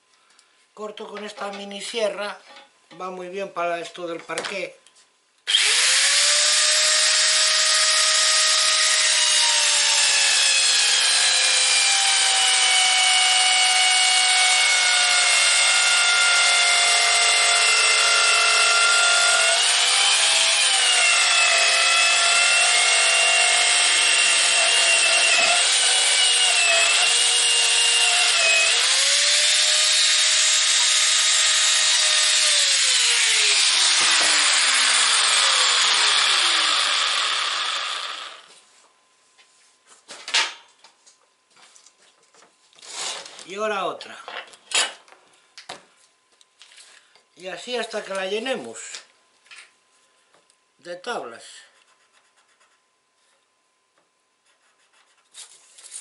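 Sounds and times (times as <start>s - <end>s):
circular saw cutting wood: 5.5s - 38.5s.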